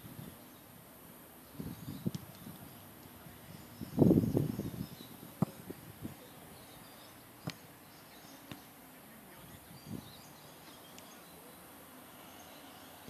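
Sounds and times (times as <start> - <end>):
football being kicked: 5.3 - 5.8.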